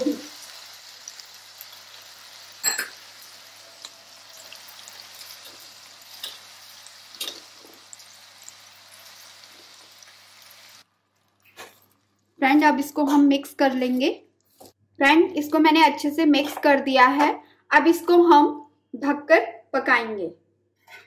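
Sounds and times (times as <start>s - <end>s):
vegetables sizzling in a pan: 0.0s - 13.0s.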